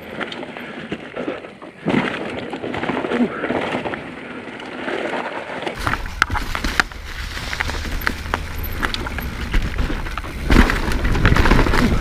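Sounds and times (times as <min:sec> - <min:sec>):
bike clicks and rattles: 0:00.0 - 0:12.0
tyres rolling over leaves and dirt: 0:00.0 - 0:12.0
low rumble: 0:05.8 - 0:12.0.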